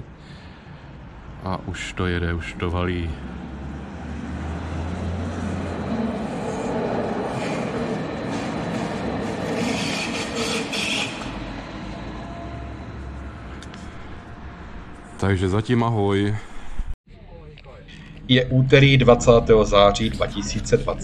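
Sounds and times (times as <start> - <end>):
train wheels rumbling: 1.5 - 17.0.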